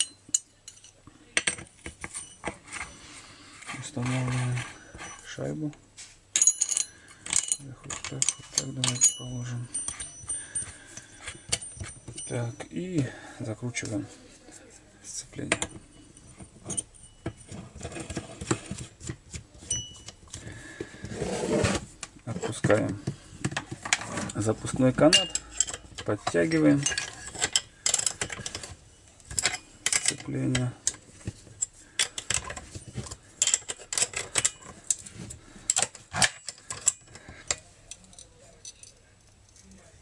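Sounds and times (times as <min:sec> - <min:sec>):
metallic ring: 0:00.0 - 0:03.1, 0:03.9 - 0:05.5, 0:06.3 - 0:13.2, 0:15.4 - 0:17.8, 0:19.7 - 0:20.2, 0:25.0 - 0:30.2
scraping handling noise: 0:00.0 - 0:39.0
small metal clicks and rattles: 0:35.7 - 0:39.7.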